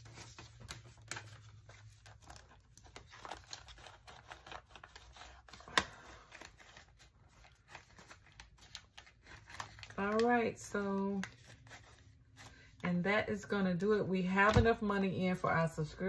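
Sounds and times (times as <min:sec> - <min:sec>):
paper banknotes rustling: 0:00.0 - 0:12.8.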